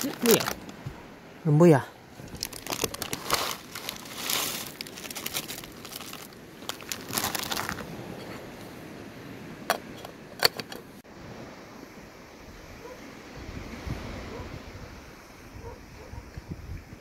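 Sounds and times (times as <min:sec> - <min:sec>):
crinkling and rustling: 0:00.0 - 0:01.0, 0:02.2 - 0:08.4.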